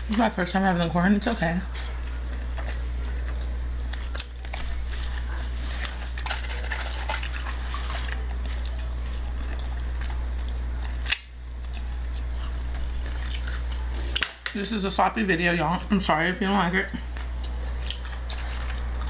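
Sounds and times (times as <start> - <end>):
person biting and chewing corn: 5.7 - 14.3.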